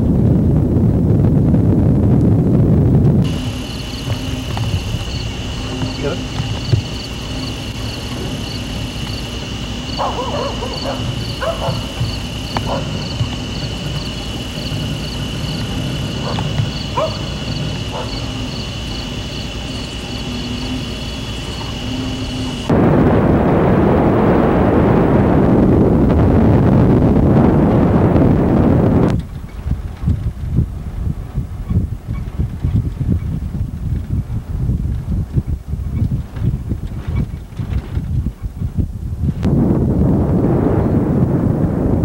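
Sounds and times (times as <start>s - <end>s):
wind buffeting microphone: 0.0s - 42.0s
truck engine rumbling: 0.1s - 32.6s
crickets trilling: 3.2s - 25.2s, 40.1s - 42.0s.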